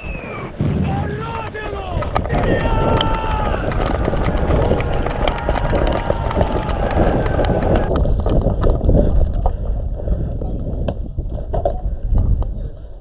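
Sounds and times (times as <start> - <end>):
footsteps: 0.0 - 8.8
wind buffeting microphone: 0.0 - 13.0
small knocks from gear: 1.8 - 8.8.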